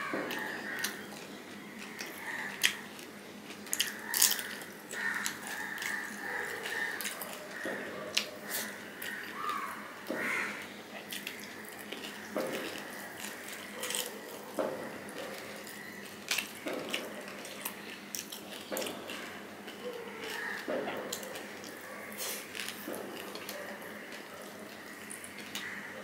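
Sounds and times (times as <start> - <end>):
wet chewing and lip-smacking: 10.9 - 25.6.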